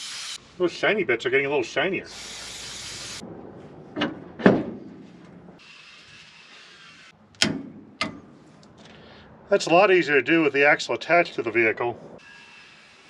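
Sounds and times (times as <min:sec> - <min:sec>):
aerosol spray can hissing: 0:00.0 - 0:00.4, 0:02.1 - 0:03.2.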